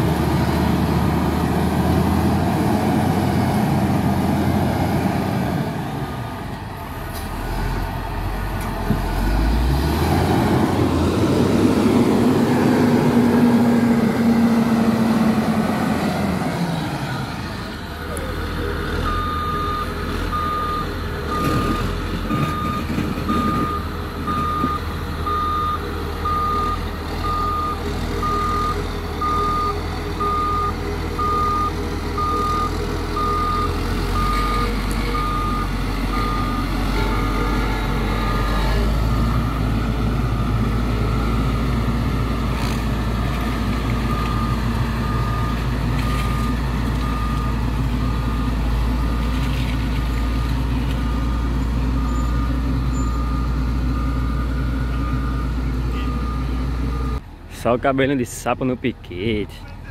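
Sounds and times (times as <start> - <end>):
diesel engine running under load: 0.0 - 59.9
reversing alarm beeping: 18.6 - 42.6, 44.0 - 49.5, 50.1 - 57.2.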